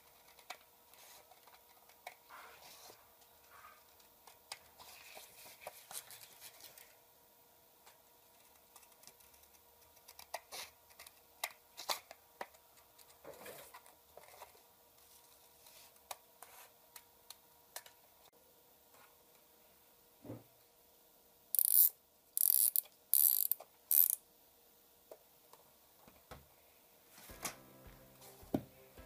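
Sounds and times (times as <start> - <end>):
paper rustling: 4.4 - 7.0.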